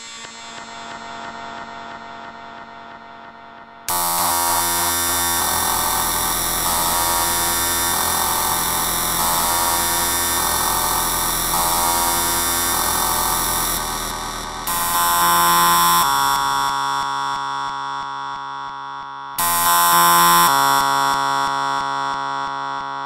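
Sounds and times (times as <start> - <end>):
rapid kick drums buzzing: 3.9 - 16.9
tonal electronic passage: 3.9 - 16.9.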